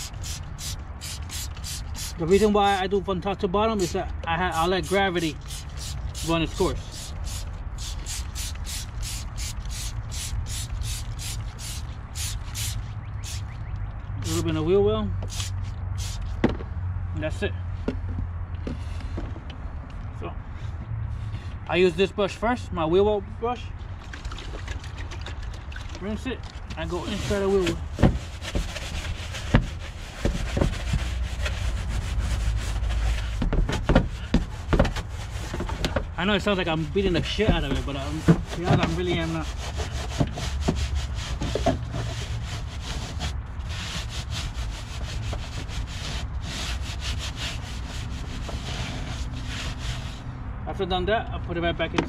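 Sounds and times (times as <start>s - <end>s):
spray bottle spritzing: 0.0s - 2.2s, 5.2s - 13.6s, 15.3s - 16.4s
brush scrubbing wheel well: 4.5s - 13.4s, 24.6s - 50.2s
brush knocking: 37.0s - 41.9s.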